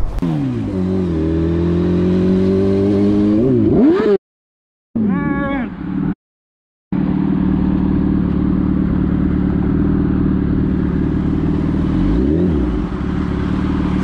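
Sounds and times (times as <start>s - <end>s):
motorcycle engine running: 6.9s - 14.0s.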